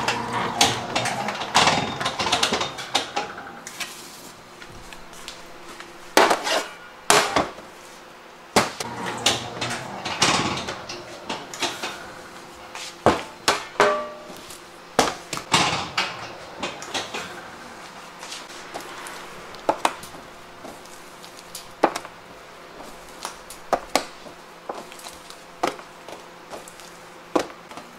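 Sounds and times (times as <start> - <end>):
metal pans clattering on steel: 13.5 - 14.4.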